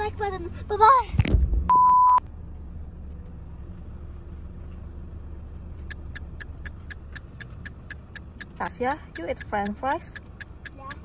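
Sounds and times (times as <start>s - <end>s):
rapid even ticking: 5.9s - 11.0s.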